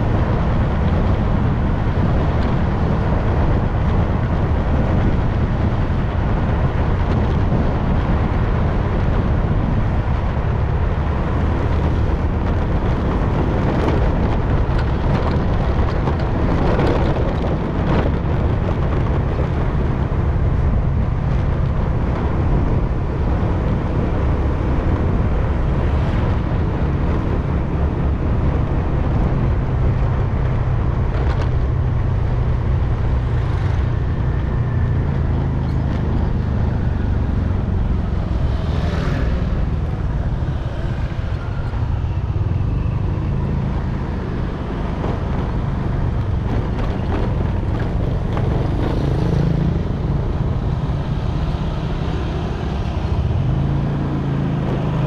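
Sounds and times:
motorcycle engine cruising: 0.0 - 55.0
road noise: 0.0 - 55.0
wind noise: 0.0 - 55.0
motorcycle passing close by: 33.2 - 55.0.

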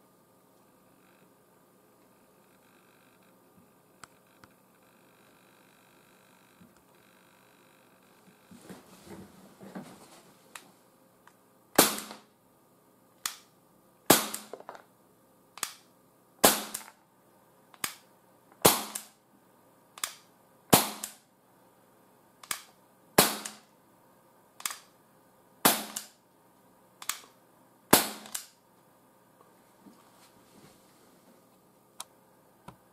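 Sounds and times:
air pistol shots: 11.8 - 12.3, 14.1 - 14.6, 16.4 - 17.0, 18.6 - 19.2, 20.0 - 21.2, 22.4 - 23.7, 25.6 - 26.2, 27.9 - 28.6.

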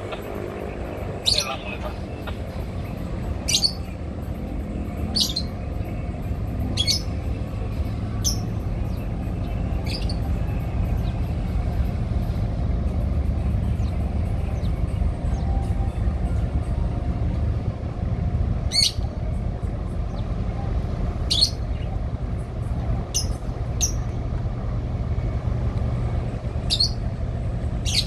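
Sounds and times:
diesel engines rumbling: 0.0 - 28.0
bird chirping: 3.5 - 3.9, 5.1 - 5.6, 8.2 - 10.3, 21.3 - 21.9, 26.7 - 27.0, 27.8 - 28.0.

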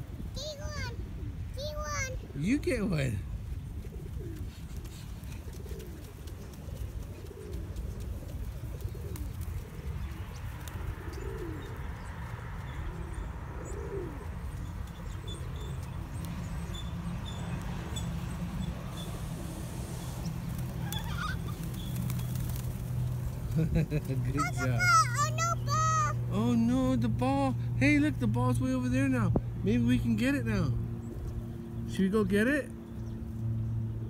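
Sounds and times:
pigeons cooing: 0.4 - 2.5, 3.5 - 26.9.

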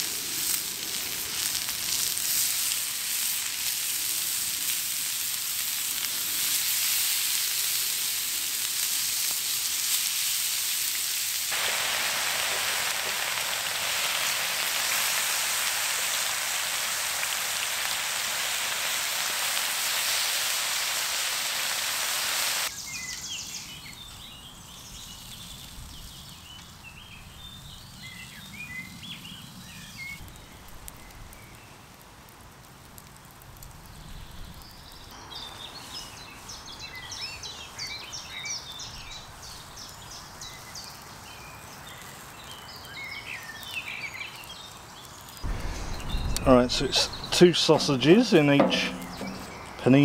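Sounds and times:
bacon sizzling on griddle: 0.0 - 23.0, 36.6 - 49.7
soft sizzle of food frying: 0.0 - 50.0.

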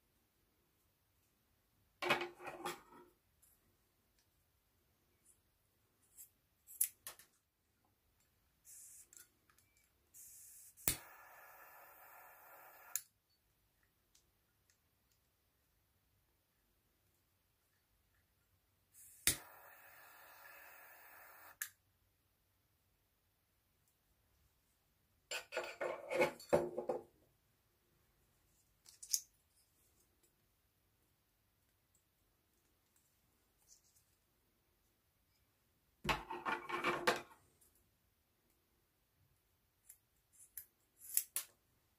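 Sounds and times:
lighter flame hissing: 8.7 - 9.2, 10.2 - 13.0, 19.0 - 21.7.

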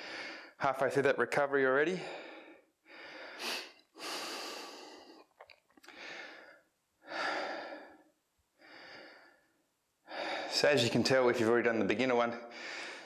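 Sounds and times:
man breathing hard: 0.0 - 0.6, 2.0 - 10.6, 12.4 - 13.0.

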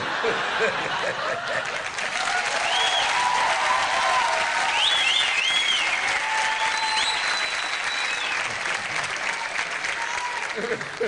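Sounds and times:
audience applauding: 0.9 - 11.0.

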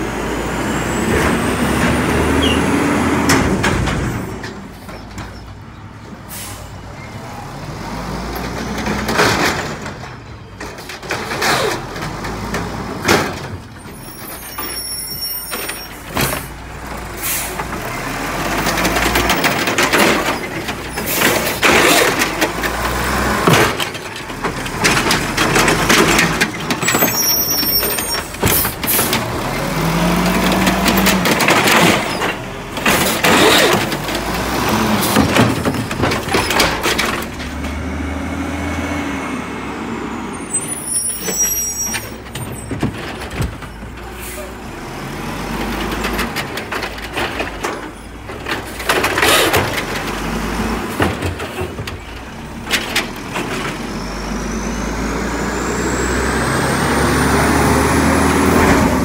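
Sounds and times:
diesel engine revving: 0.0 - 4.5, 16.0 - 41.4, 43.0 - 59.0
cart banging and rattling: 0.9 - 5.8, 8.3 - 38.1, 40.5 - 54.4.

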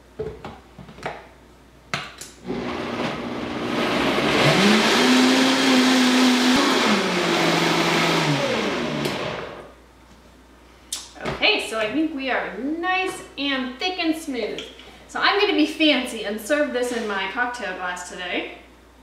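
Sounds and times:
blender whirring: 2.4 - 9.7.

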